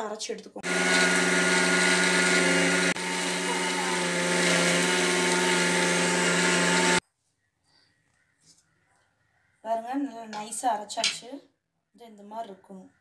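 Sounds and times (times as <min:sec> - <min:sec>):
mixer grinder motor hum: 0:00.6 - 0:07.0.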